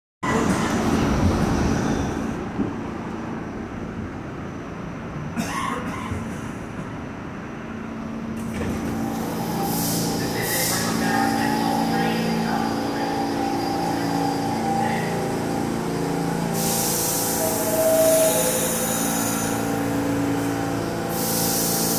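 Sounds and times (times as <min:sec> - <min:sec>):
subway train rumble: 0:00.2 - 0:21.9.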